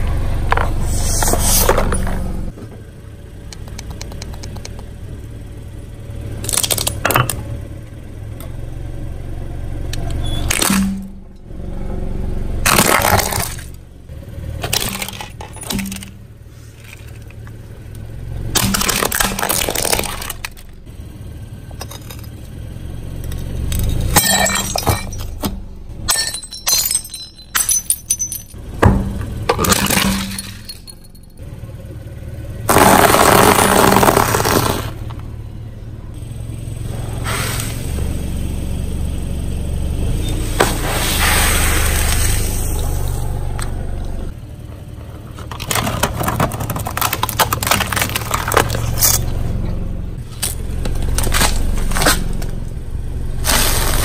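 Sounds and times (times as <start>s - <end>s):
low car rumble: 0.0s - 54.0s
crunching under car tyre: 12.6s - 13.8s, 32.7s - 35.3s, 45.0s - 52.8s, 53.4s - 54.0s.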